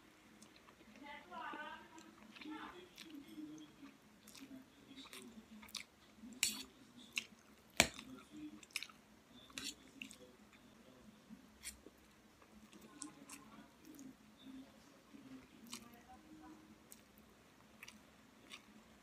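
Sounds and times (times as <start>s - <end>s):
chewing noodles: 1.9s - 10.6s.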